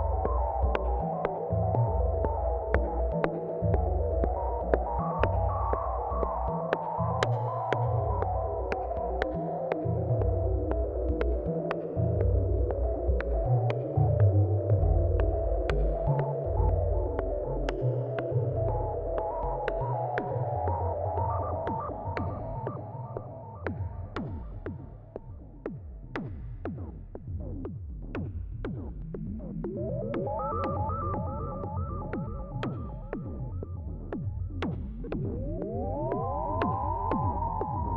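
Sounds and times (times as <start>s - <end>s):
sustained synth drone: 0.0s - 25.1s, 29.6s - 37.9s
deep pulsing synth bass: 0.0s - 37.9s
percussive hits with falling pitch: 29.6s - 37.9s.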